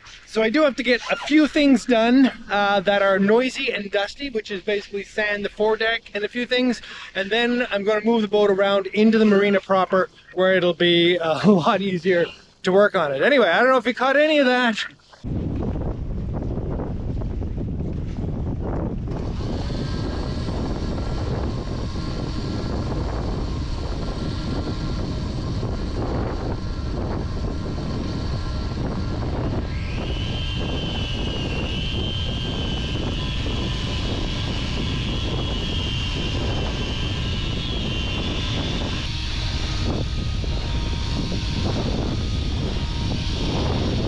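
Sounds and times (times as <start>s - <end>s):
electric sander whine: 0.0s - 12.4s, 15.2s - 44.0s
wind buffeting microphone: 15.2s - 44.0s
shop vacuum motor whine: 18.0s - 44.0s.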